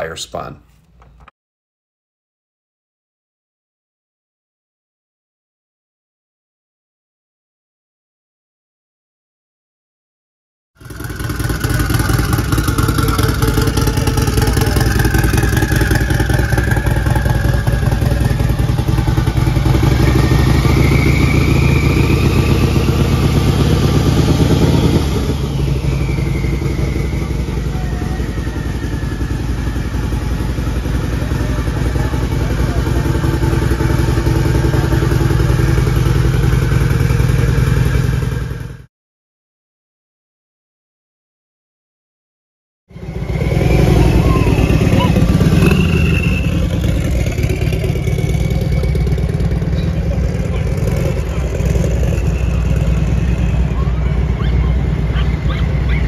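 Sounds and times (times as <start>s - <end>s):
motorcycle engine running: 10.8s - 38.9s, 42.9s - 56.0s
turbo whine rising in pitch: 10.9s - 32.6s, 42.9s - 53.9s.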